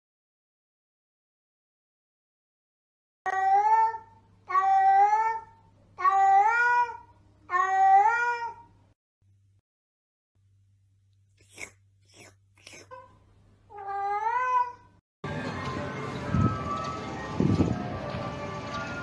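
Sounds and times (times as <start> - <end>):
cat meowing: 3.3 - 8.7, 13.7 - 14.9.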